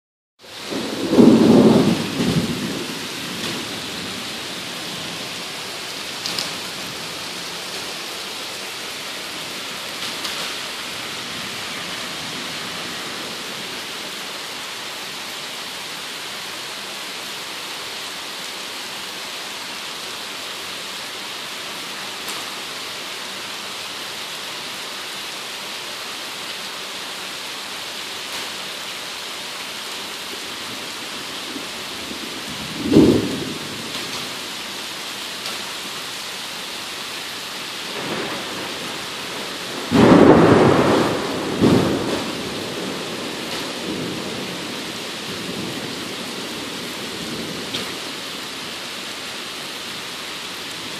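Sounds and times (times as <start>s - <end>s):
heavy rain: 0.4s - 50.9s
thunder rumble: 0.6s - 8.7s, 30.6s - 34.8s, 37.9s - 48.7s.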